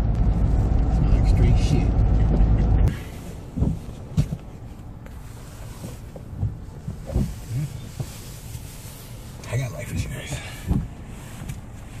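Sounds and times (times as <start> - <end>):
car engine idling: 0.0 - 12.0
soft low thumps: 1.9 - 5.2, 5.8 - 8.7, 10.0 - 11.7.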